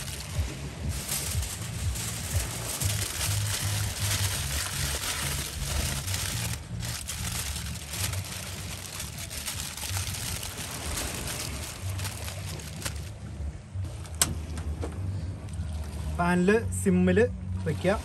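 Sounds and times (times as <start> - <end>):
aluminium foil crinkling: 0.0 - 13.1
low steady rumble: 0.0 - 18.0.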